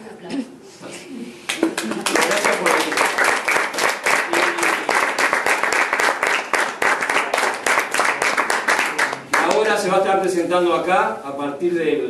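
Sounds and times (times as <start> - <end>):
audience applause: 1.5 - 9.8.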